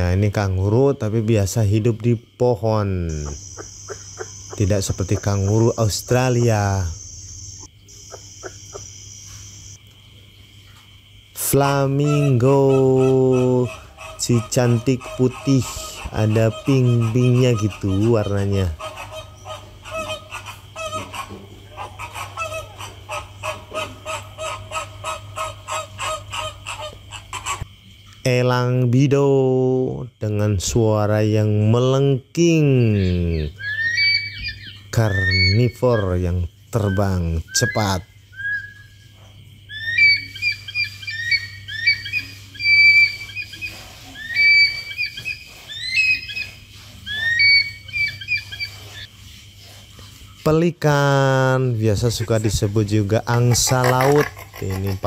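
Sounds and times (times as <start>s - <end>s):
flamingos honking: 2.7s - 9.8s, 11.4s - 27.7s, 33.0s - 38.0s, 39.8s - 49.1s, 52.1s - 55.0s
eagle shrill call: 33.0s - 36.1s, 39.7s - 46.5s, 47.1s - 49.1s.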